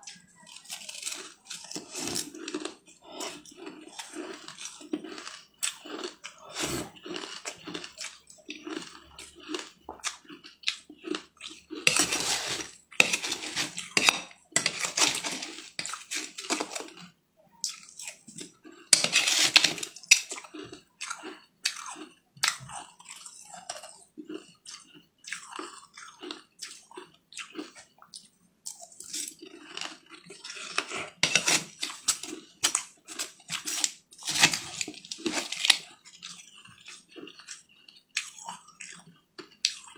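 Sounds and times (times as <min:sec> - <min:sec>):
crunchy chewing: 0:00.0 - 0:39.9
metal spoon scraping metal bowl: 0:11.8 - 0:16.9, 0:18.9 - 0:20.4, 0:30.7 - 0:36.4.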